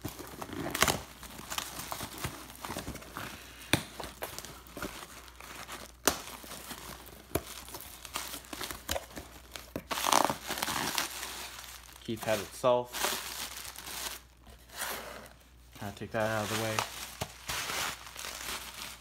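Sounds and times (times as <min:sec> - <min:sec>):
wrapping and tape cracking: 0:00.0 - 0:14.3, 0:15.8 - 0:19.0
plastic and cardboard crinkling: 0:00.0 - 0:19.0.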